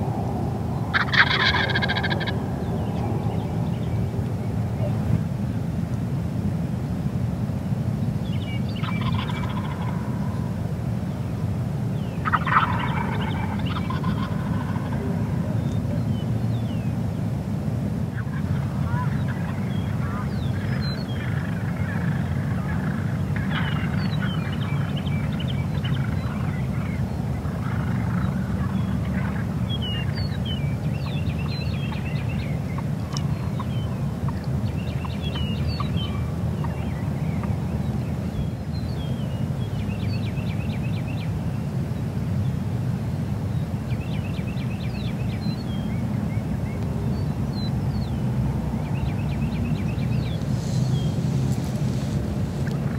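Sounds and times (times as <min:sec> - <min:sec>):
songbirds chirping and whistling: 0:00.0 - 0:05.2, 0:08.0 - 0:10.5, 0:11.9 - 0:17.0, 0:18.2 - 0:52.9
steady low rumble: 0:00.0 - 0:41.2
turkey gobbling: 0:00.9 - 0:02.4, 0:08.8 - 0:10.1, 0:12.2 - 0:15.6, 0:18.1 - 0:30.4.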